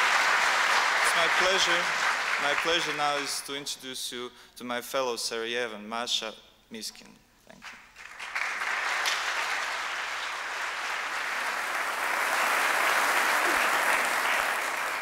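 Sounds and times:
audience applauding: 0.0s - 3.4s, 7.6s - 15.0s.

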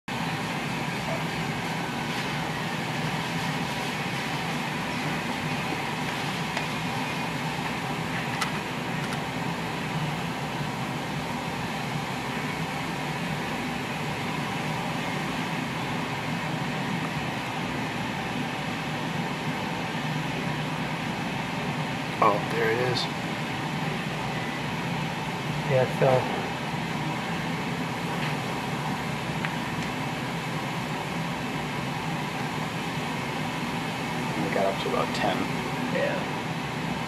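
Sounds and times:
mechanical hum and hiss: 0.1s - 37.0s.

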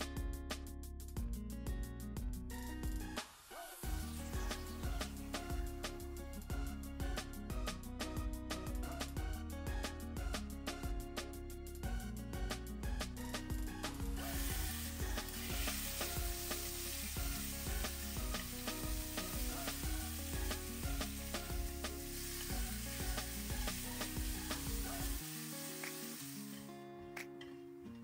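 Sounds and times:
background music: 0.0s - 28.0s
meat sizzling in oil: 14.2s - 26.7s.

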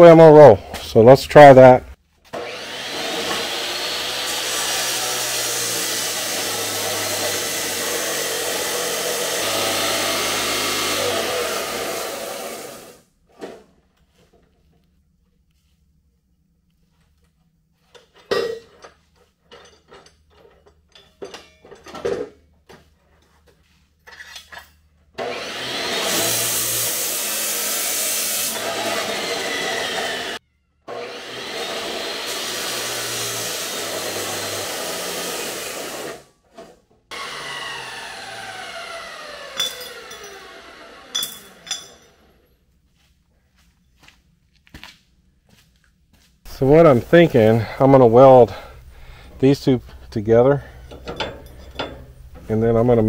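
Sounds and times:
chop saw cutting steel: 2.3s - 13.0s, 25.2s - 36.3s, 37.1s - 42.4s
metal knocks and clanks: 50.8s - 52.6s.

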